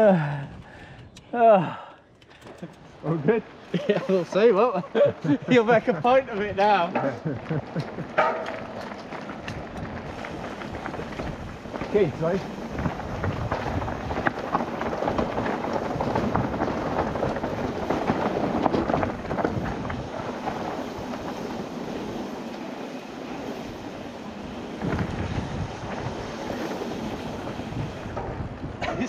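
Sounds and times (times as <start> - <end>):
bike rattling: 0.0 - 29.0
tyre noise on dirt: 2.4 - 29.0
wind on microphone: 9.4 - 21.6, 23.6 - 29.0.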